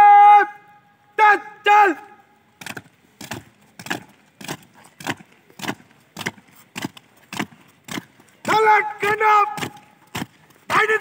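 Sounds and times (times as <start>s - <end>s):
marching footsteps on concrete: 2.5s - 11.0s.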